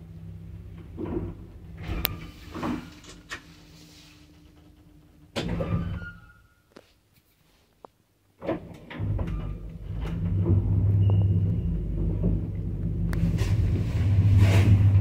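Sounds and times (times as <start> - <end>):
lift machinery humming: 9.0 - 15.0.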